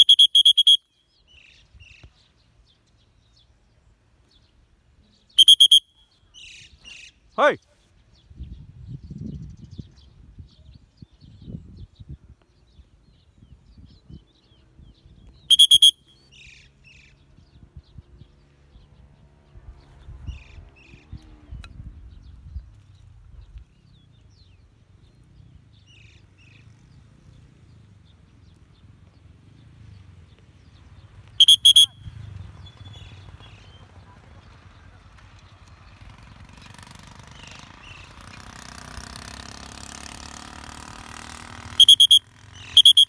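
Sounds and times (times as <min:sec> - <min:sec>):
loud trilling whistle: 0:00.0 - 0:00.8, 0:05.4 - 0:06.0, 0:15.5 - 0:16.1, 0:31.4 - 0:32.0, 0:41.7 - 0:43.0
faint bird chirps: 0:00.0 - 0:12.1, 0:12.8 - 0:19.2, 0:19.9 - 0:35.0, 0:41.8 - 0:43.0.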